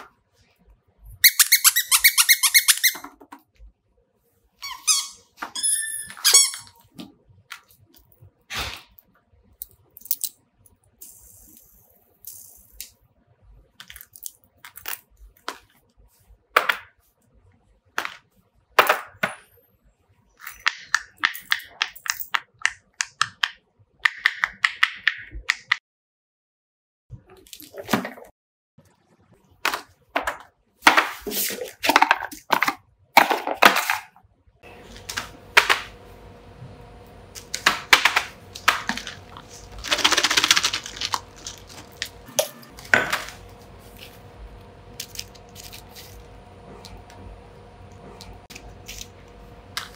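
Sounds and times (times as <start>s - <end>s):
plastic toys clicking and tapping: 20.6s - 25.8s, 37.4s - 42.1s
rustling rattle: 38.9s - 42.2s.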